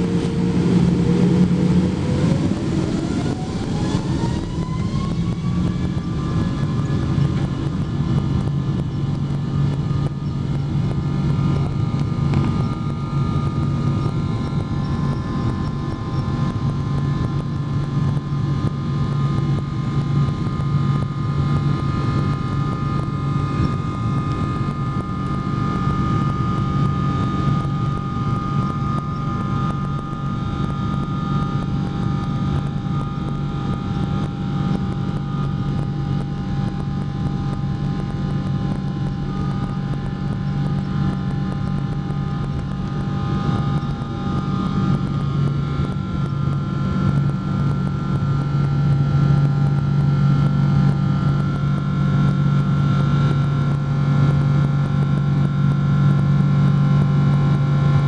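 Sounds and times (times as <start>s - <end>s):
jet engines rumbling in cabin: 0.0s - 58.0s.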